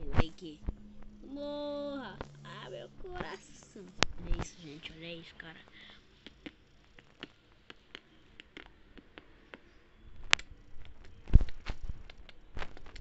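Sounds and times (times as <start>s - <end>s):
faint clicks and taps: 6.2s - 13.0s.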